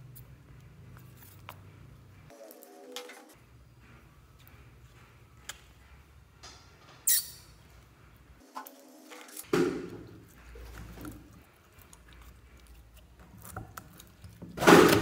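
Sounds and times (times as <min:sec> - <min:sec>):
sharp squeaky squirt: 0:07.0 - 0:07.6.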